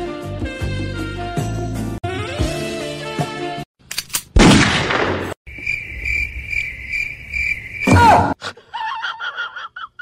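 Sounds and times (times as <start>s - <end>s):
cricket chirping: 5.5s - 8.4s.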